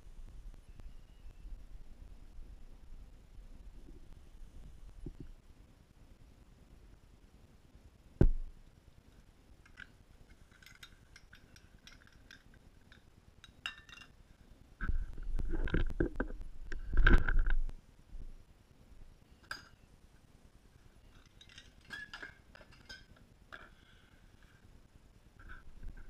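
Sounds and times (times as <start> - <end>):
faint light clinks: 9.6 - 14.2, 19.4 - 19.9.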